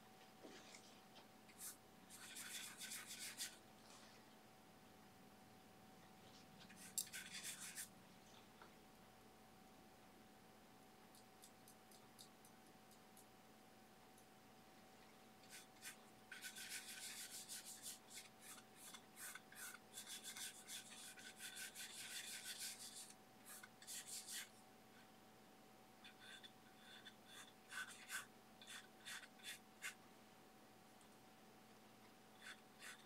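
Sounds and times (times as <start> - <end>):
brush rubbing paint on panel: 1.6 - 3.6, 15.5 - 24.5.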